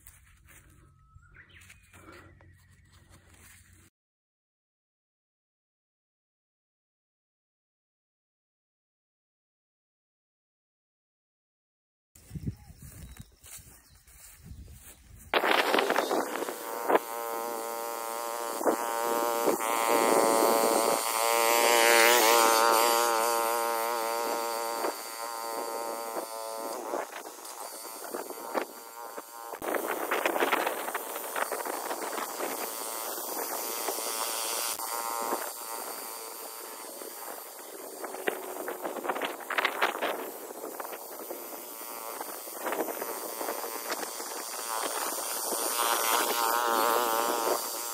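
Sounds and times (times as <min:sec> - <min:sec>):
cultivator engine running: 0:12.6 - 0:47.9.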